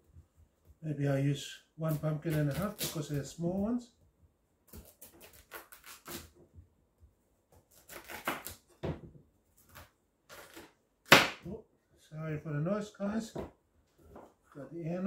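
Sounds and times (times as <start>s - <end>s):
knife cutting pumpkin: 1.8s - 3.6s, 4.6s - 6.4s, 7.6s - 8.8s.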